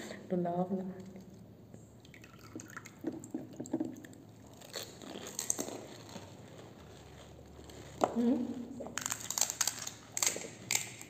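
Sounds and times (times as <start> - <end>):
crisp shells crunching: 4.4 - 11.0.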